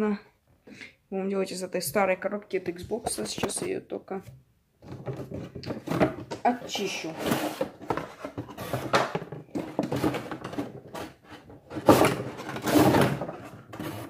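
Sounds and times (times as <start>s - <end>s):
cardboard box scraping and rustling: 5.8s - 14.0s.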